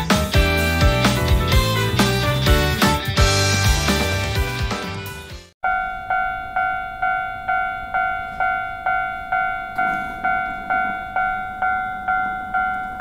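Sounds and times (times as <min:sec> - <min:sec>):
level-crossing alarm bell ringing: 0:05.6 - 0:13.0.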